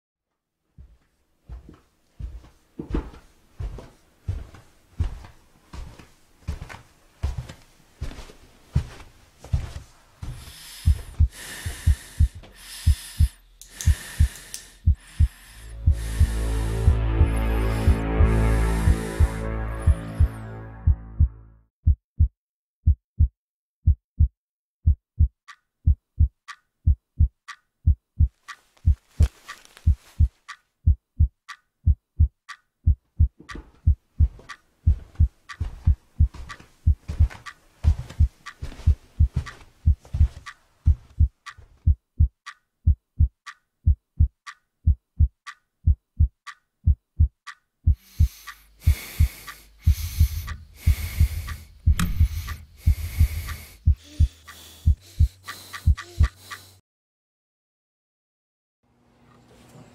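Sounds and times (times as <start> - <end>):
heartbeat thumps: 1.5 - 56.6
clock ticking: 10.8 - 18.2, 24.2 - 56.8.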